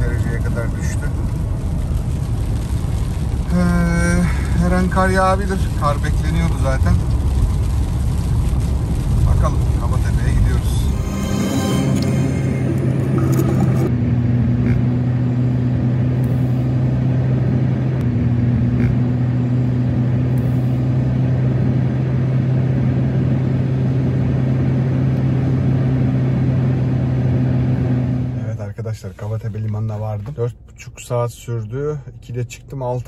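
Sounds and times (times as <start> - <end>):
tyre noise on wet road: 0.0 - 11.1
car engine hum: 0.0 - 33.0.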